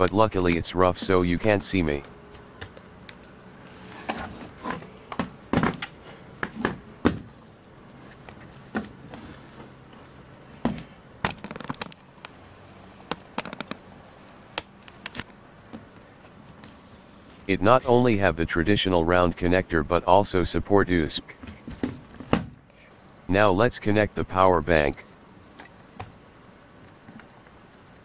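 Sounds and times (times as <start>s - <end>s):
laptop handling clicks and taps: 13.1s - 13.8s, 14.5s - 15.4s
faint low hum: 16.9s - 21.5s, 22.8s - 25.3s.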